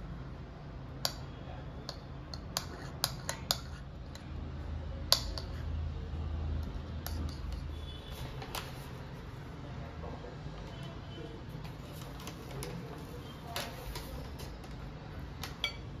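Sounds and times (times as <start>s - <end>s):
metal spoon clinking on bowl: 1.8s - 4.2s, 15.4s - 16.0s.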